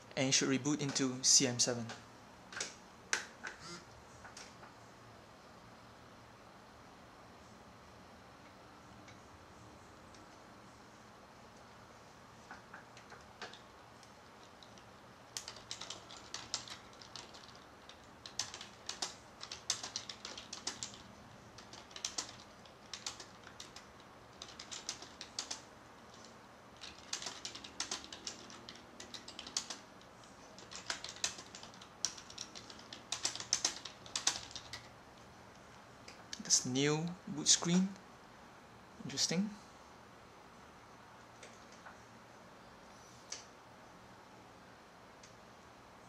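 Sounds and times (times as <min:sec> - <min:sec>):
rapid sharp clicks: 0:12.4 - 0:34.9.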